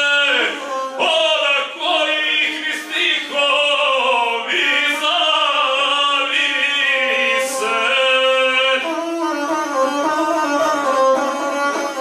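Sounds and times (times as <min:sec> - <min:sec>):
man singing epic verse: 0:00.0 - 0:09.0
bowed one-string fiddle: 0:00.0 - 0:12.0.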